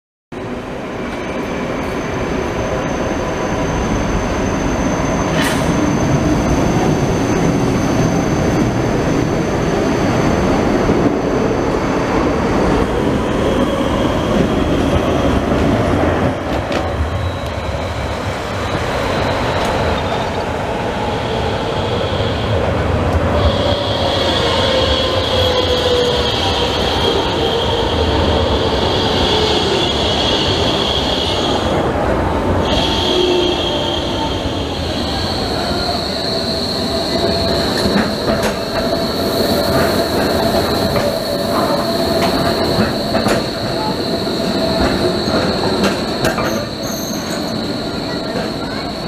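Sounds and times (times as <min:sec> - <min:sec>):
tram wheels rumbling on rail: 0:00.4 - 0:49.0
wheel squeal: 0:32.6 - 0:49.0.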